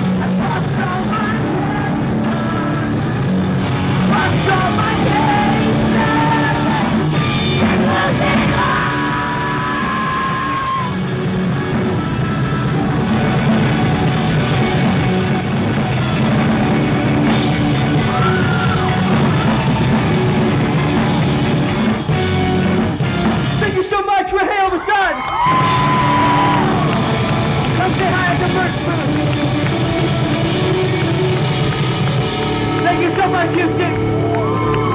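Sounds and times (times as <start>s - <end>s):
live rock band playing: 0.0s - 24.1s, 25.4s - 34.9s
person singing and yelling: 4.1s - 10.9s.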